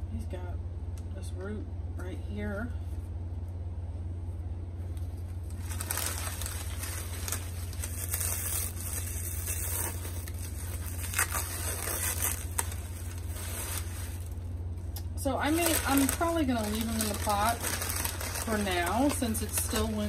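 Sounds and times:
low hum: 0.0 - 20.0
packing paper rustling and crinkling: 5.0 - 14.5, 15.2 - 20.0
sharp paper crackles: 5.3 - 14.5, 15.4 - 20.0.

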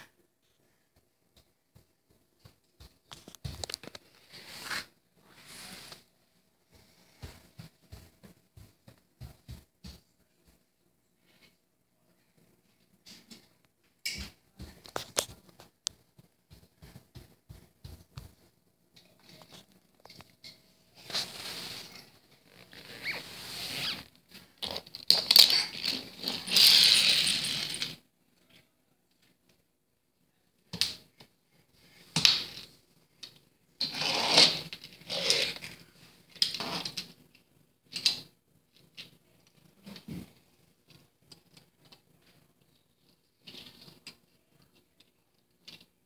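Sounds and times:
hands patting wooden floor: 6.7 - 10.6
toy cars scraping on wooden floor: 22.6 - 24.1, 24.7 - 28.0, 33.8 - 35.7.

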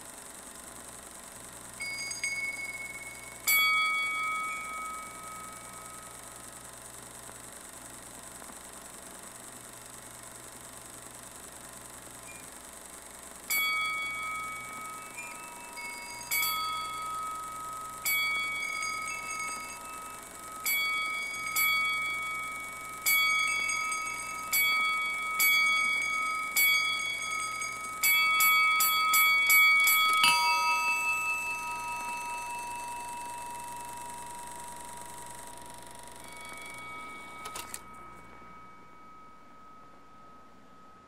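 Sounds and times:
bell ringing: 1.8 - 6.7, 13.5 - 41.0.

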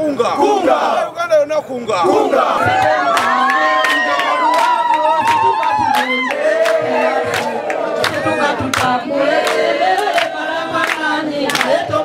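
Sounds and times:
crowd singing in unison: 0.2 - 1.1, 2.0 - 12.0.

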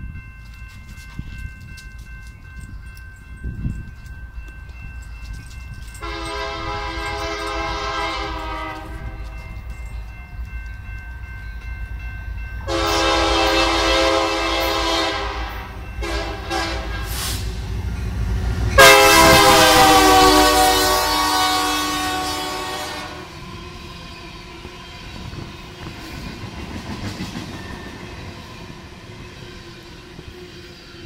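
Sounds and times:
locomotive air horn blasts: 6.0 - 9.3, 12.6 - 17.5, 18.8 - 23.4.

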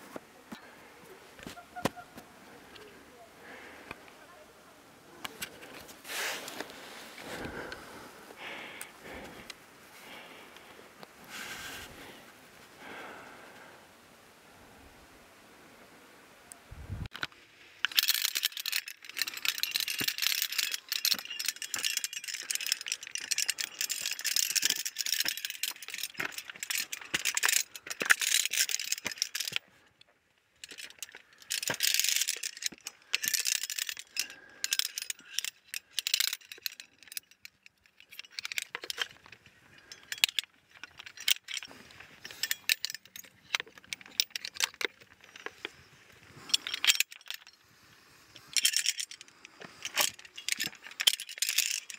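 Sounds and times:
carabiners clinking on metal chain: 17.1 - 51.9.

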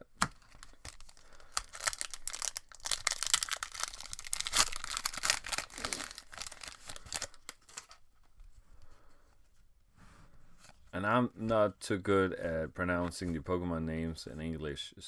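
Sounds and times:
foil wrapper tearing and crinkling: 0.4 - 8.0.

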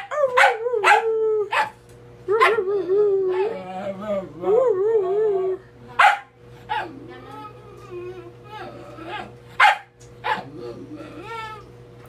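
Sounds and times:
dog howling whines: 10.4 - 11.7.

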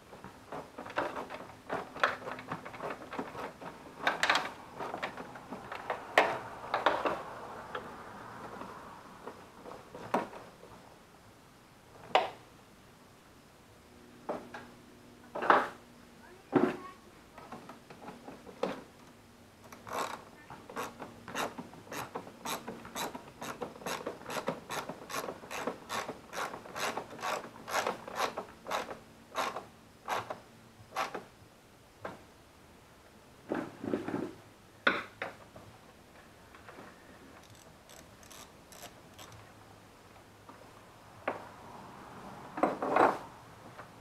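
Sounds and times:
socket ratchet clicking: 37.4 - 39.4.

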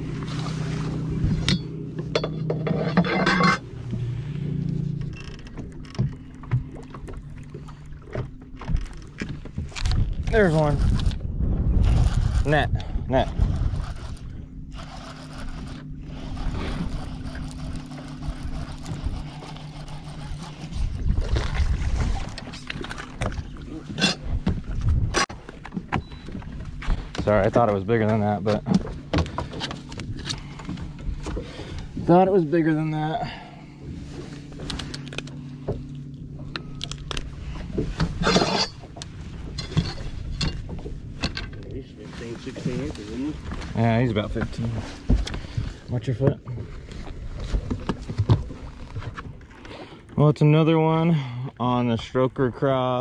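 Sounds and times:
wind and water rumble: 0.0 - 53.0
electric motor humming: 13.0 - 21.6.

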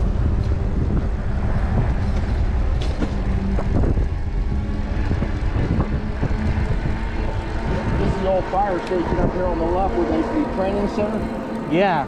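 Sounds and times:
tyre noise on pavement: 0.0 - 9.0
wind rushing over microphone: 0.0 - 12.0.

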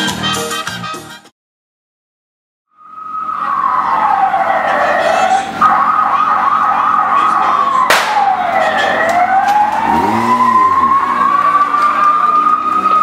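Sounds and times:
siren wailing: 2.7 - 13.0
sharp crack: 7.8 - 9.8.

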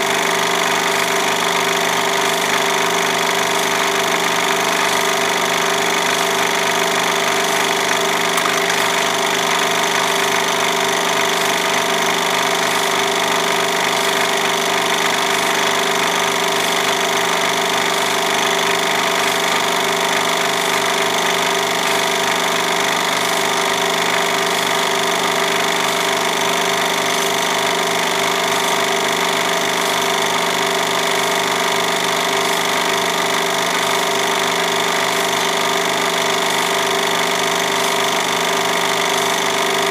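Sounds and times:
film projector whirring and clattering: 0.0 - 39.9.

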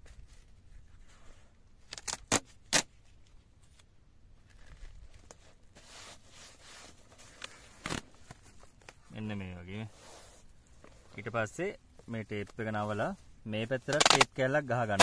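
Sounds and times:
tape rubbed down rustle: 0.0 - 9.0, 9.7 - 11.4, 12.0 - 15.0
adhesive tape ripping off roll: 1.8 - 2.9, 13.9 - 14.4.

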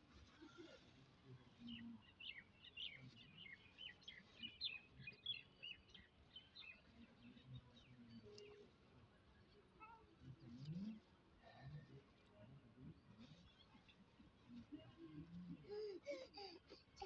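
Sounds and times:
birds chirping faintly: 0.0 - 17.0.

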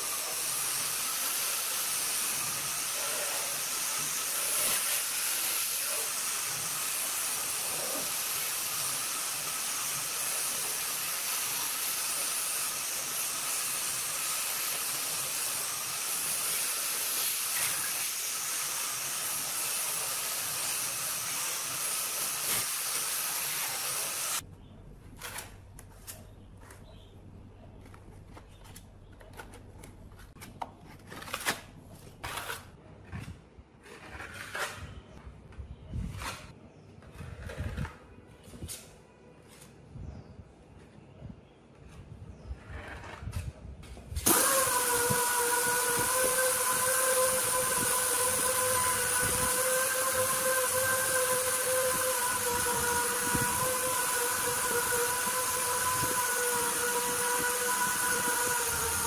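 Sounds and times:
angle grinder sanding metal: 0.0 - 24.4, 44.3 - 59.0
putty knife scraping: 32.2 - 35.1.

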